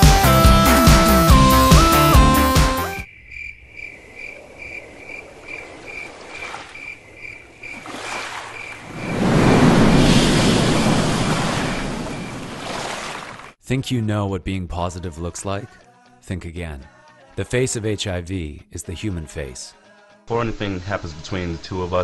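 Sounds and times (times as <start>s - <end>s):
upbeat music: 0.0s - 3.0s
crickets chirping: 3.0s - 12.7s
ocean wave: 4.3s - 7.0s, 7.6s - 13.6s.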